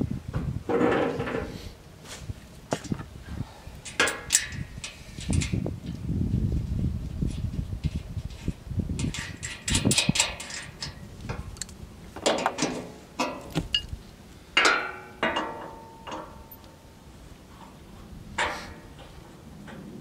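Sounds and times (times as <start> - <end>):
metallic clanks and clicks: 3.8 - 5.6, 9.0 - 13.9, 14.6 - 16.7.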